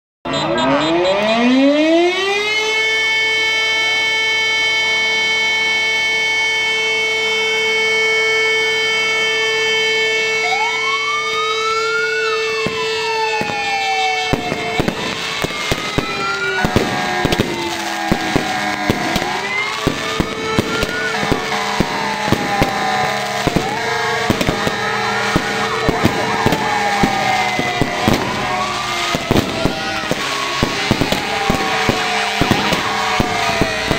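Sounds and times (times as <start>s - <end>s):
fire engine sirens wailing: 0.3s - 33.9s
fireworks fountains hissing: 11.8s - 33.9s
firecracker cracks: 13.4s - 33.9s.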